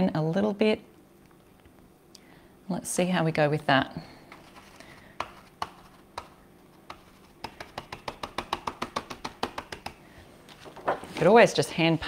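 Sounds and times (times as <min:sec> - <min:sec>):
stencil brush tapping on chalkboard: 0:05.2 - 0:10.0.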